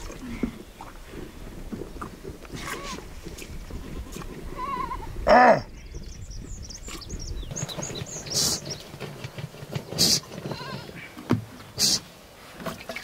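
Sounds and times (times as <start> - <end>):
short hiss-like bursts: 11.8 - 12.1.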